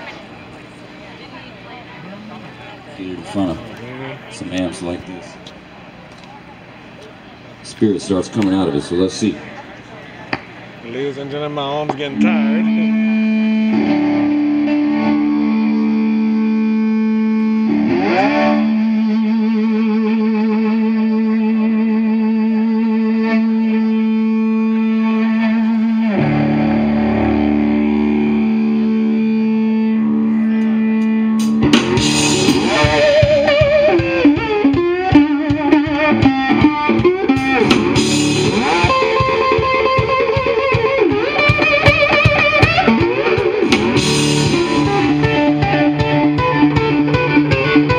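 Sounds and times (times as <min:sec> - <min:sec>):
blues band playing: 0:00.0 - 0:47.9
distorted electric guitar: 0:11.4 - 0:47.9
drums: 0:30.6 - 0:47.9.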